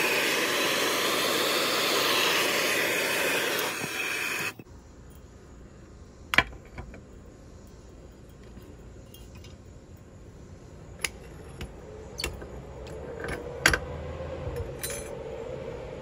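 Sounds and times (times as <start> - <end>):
metal clinks and knocks: 8.2 - 9.7.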